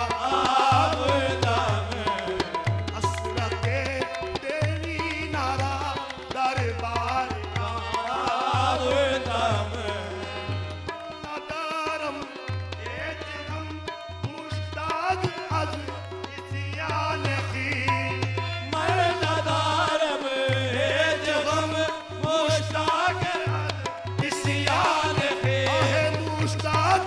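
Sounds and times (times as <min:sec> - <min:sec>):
tabla drumming: 0:00.0 - 0:27.0.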